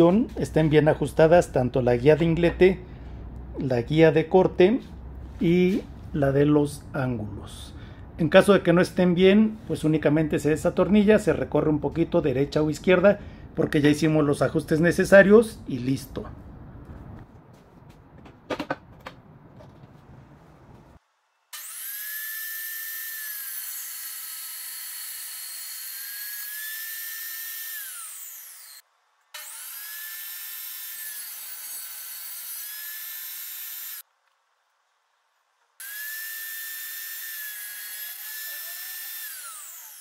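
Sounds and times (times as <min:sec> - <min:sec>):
table saw cutting wood: 0:21.5 - 0:28.8, 0:29.4 - 0:34.0, 0:35.8 - 0:40.0.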